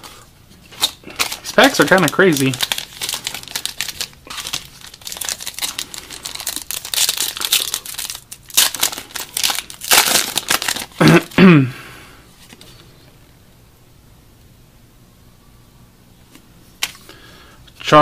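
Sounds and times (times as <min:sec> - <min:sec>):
foil wrapper crinkling and tearing: 0:00.6 - 0:11.4.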